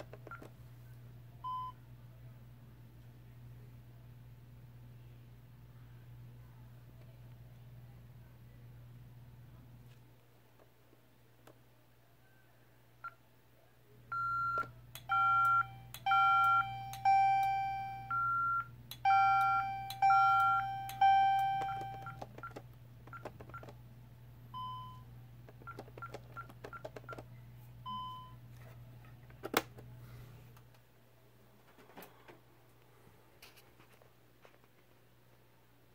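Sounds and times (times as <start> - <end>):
keypad key beeps: 14.2 - 23.8, 25.6 - 27.3.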